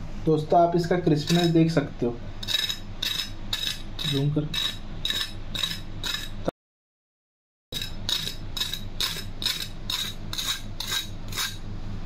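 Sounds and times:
spatula scraping crispy toast: 0:02.4 - 0:06.4, 0:07.8 - 0:11.6.

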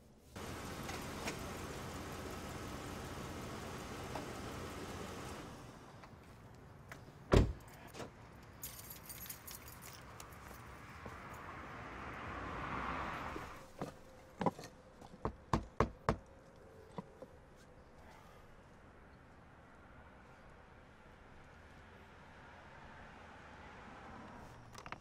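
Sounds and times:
truck door slamming: 0:07.3 - 0:07.6
keys jangling: 0:08.5 - 0:10.7.

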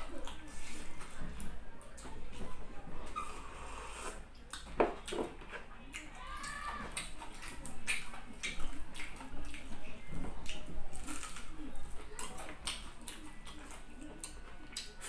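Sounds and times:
crunchy chewing: 0:04.0 - 0:15.0.

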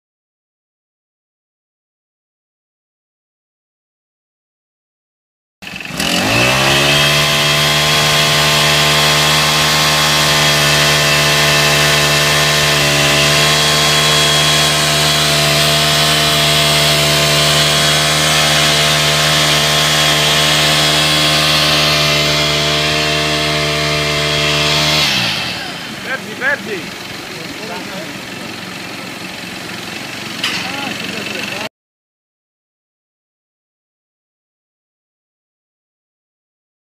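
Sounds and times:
small engine running at high speed: 0:05.6 - 0:31.7.

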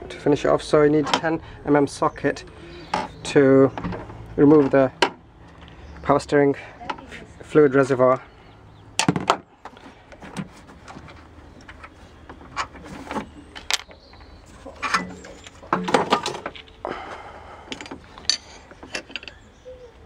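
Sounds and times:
hand tools clinking on metal: 0:17.7 - 0:19.5.

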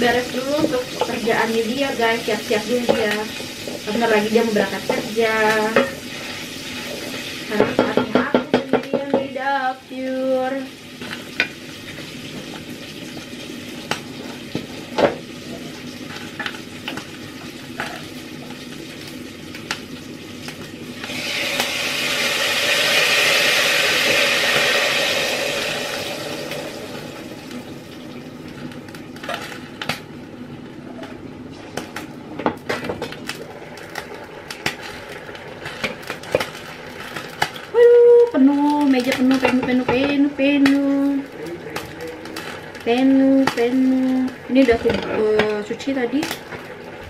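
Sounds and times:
pork sizzling in a pan: 0:00.0 - 0:47.0.

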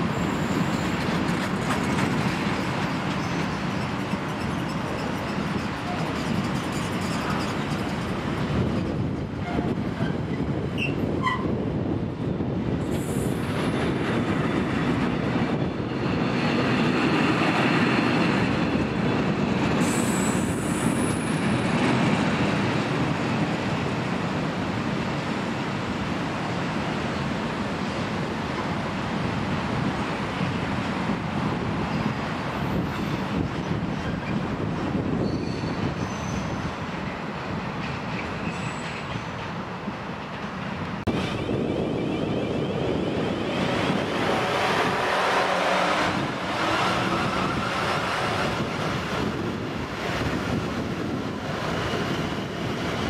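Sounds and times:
train wheels rumbling on rail: 0:00.0 - 0:53.0
wheel squeals: 0:35.1 - 0:36.6, 0:38.2 - 0:39.3.

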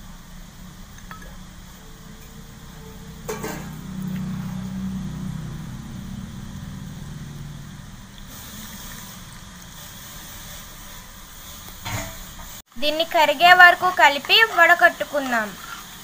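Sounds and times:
low hum: 0:00.0 - 0:09.9.

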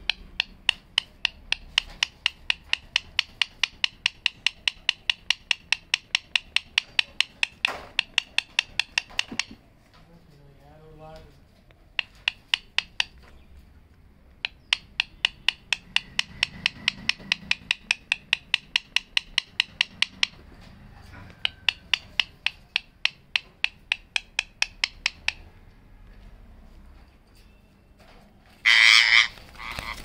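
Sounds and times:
parakeet beak clicking on stick: 0:00.0 - 0:09.6, 0:11.9 - 0:13.4, 0:14.3 - 0:20.5, 0:21.2 - 0:25.5, 0:28.7 - 0:30.0.

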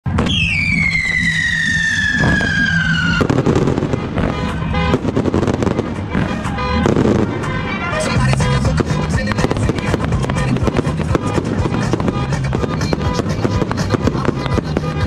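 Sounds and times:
falling firework whistle: 0:00.1 - 0:07.0
firework launch pops and cracks: 0:00.1 - 0:07.2
music: 0:04.2 - 0:15.0.

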